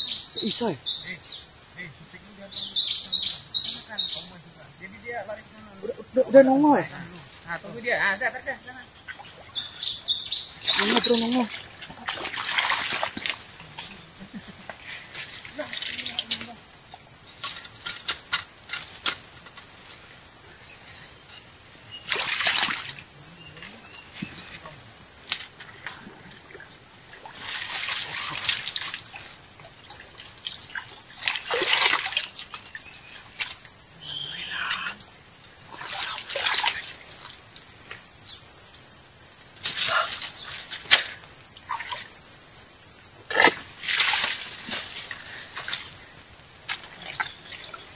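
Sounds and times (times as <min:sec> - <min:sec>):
high-pitched insect drone: 0:00.0 - 0:47.9
fish splashing in water: 0:10.6 - 0:13.9, 0:22.0 - 0:23.0, 0:27.4 - 0:29.3, 0:31.2 - 0:32.8, 0:35.8 - 0:37.0, 0:43.4 - 0:45.9.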